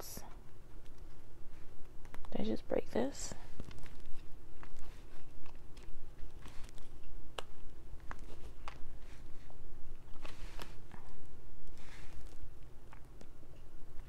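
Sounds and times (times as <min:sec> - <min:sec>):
low steady hum: 0:00.0 - 0:14.0
hands handling envelopes: 0:03.4 - 0:14.0.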